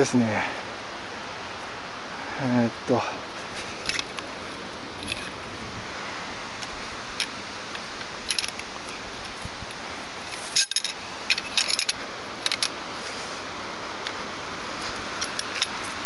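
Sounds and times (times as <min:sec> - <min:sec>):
background hiss: 0:00.0 - 0:16.0
metal poles clinking and rattling: 0:03.4 - 0:05.4, 0:06.6 - 0:13.2, 0:14.0 - 0:16.0.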